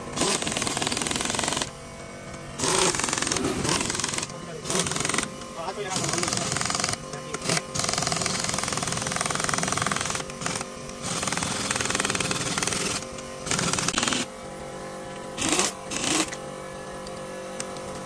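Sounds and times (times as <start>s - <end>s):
machine hum: 0.0s - 18.0s
rapid mechanical rattling: 2.6s - 14.3s, 15.4s - 16.4s.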